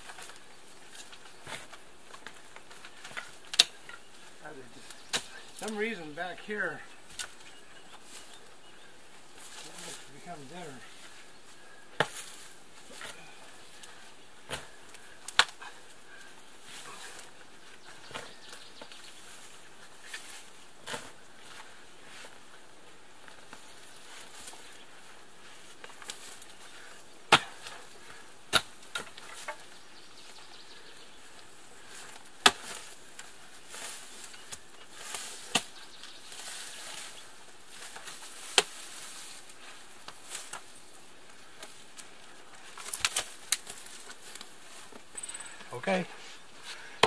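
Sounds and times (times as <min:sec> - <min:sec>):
digging tool striking frozen ground: 0:27.3 - 0:27.7.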